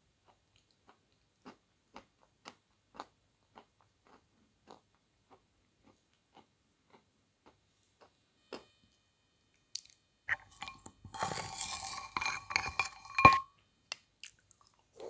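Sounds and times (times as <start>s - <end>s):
person chewing wetly: 0.2s - 8.7s.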